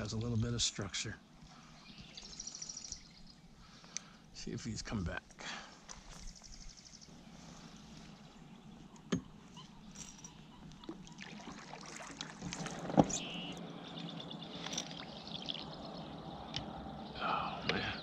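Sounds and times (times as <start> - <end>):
water trickling and lapping: 5.8 - 17.9.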